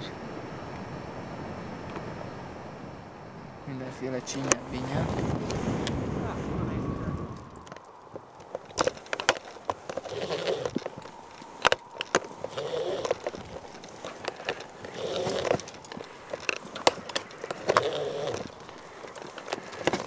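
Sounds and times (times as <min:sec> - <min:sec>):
metal climbing hardware clinking: 0:07.4 - 0:20.0
strained breathing: 0:08.3 - 0:20.0.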